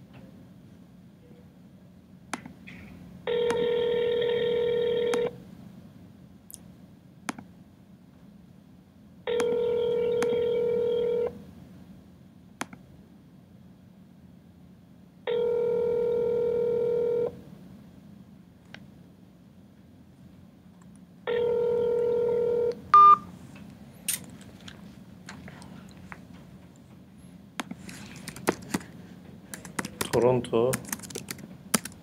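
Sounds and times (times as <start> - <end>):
telephone ringback tone: 3.3 - 5.4, 9.3 - 11.4, 15.3 - 17.4, 21.3 - 23.3.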